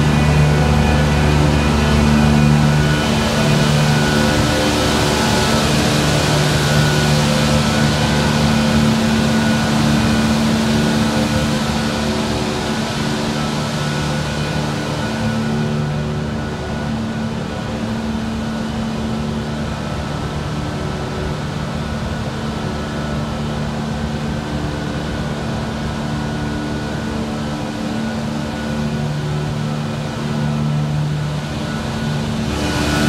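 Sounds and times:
steady electronic tones: 0:00.0 - 0:17.0
cooling fans humming: 0:00.0 - 0:33.0.

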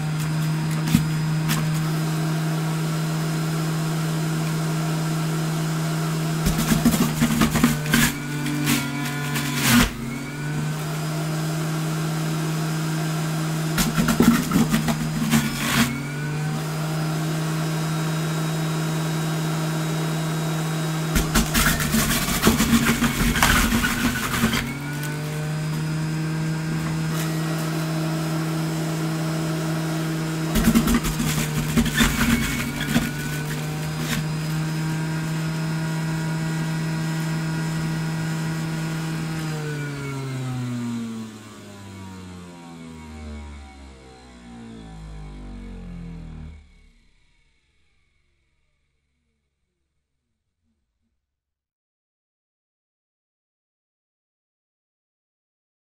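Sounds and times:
juicer grinding produce: 0:00.0 - 0:47.0
juicer motor humming: 0:00.0 - 0:47.0
motor winding down: 0:22.0 - 0:48.1.

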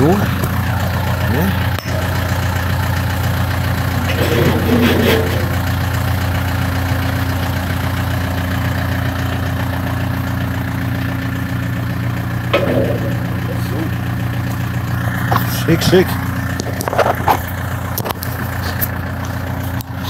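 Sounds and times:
tractor diesel engine idling: 0:00.0 - 0:20.0
short clatter: 0:03.7 - 0:06.2, 0:12.4 - 0:18.9.

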